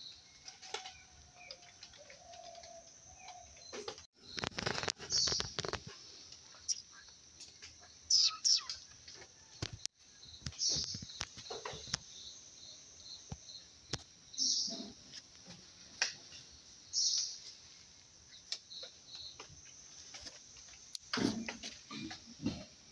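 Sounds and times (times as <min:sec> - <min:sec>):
birds chirping: 0:00.0 - 0:05.9, 0:06.5 - 0:13.7.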